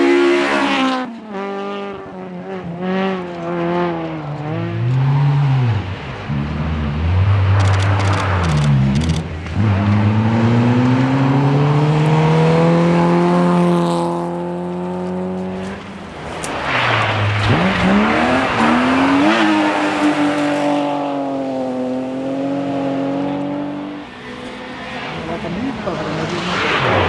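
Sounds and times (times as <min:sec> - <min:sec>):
rally car engine: 0:00.0 - 0:27.0
second car engine revving: 0:16.7 - 0:27.0.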